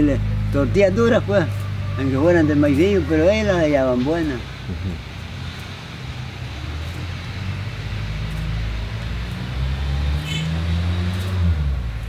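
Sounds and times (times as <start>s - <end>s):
motor engine humming: 0.0s - 12.0s.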